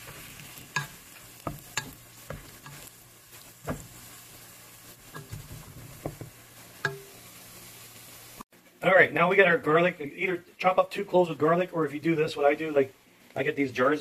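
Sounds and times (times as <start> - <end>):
spoon knocking and scraping pot: 0.0 - 2.9, 3.6 - 4.0, 5.1 - 7.1
onions sizzling in butter: 0.0 - 8.8.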